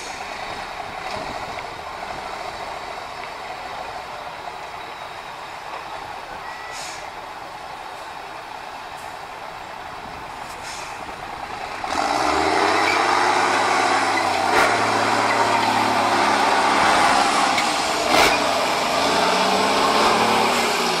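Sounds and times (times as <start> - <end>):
diesel truck engine revving: 10.6 - 21.0.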